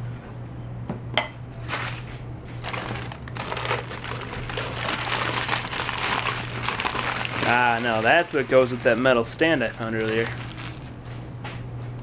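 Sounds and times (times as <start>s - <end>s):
steady low hum: 0.0s - 12.0s
newspaper crinkling and rustling: 2.6s - 11.0s.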